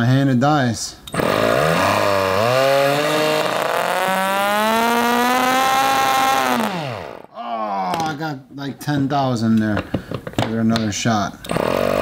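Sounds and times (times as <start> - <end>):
model engine buzzing at full throttle: 1.2 - 7.3, 11.5 - 12.0.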